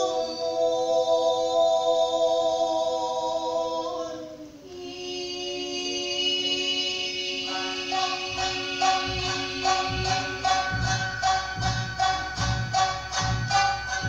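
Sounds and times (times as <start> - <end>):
voices chanting held notes: 0.0 - 14.0
short percussion strikes: 7.9 - 14.0.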